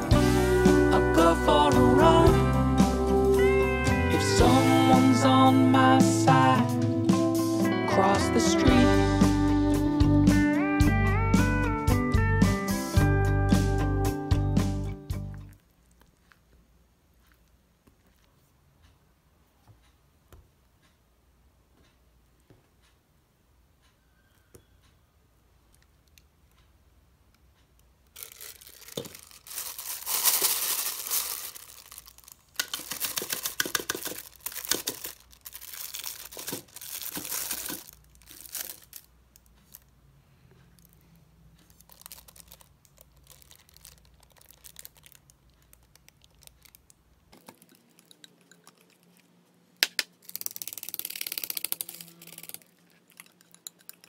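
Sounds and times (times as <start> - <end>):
plastic bag crinkling: 28.1 - 39.9, 41.6 - 49.3, 50.0 - 53.8.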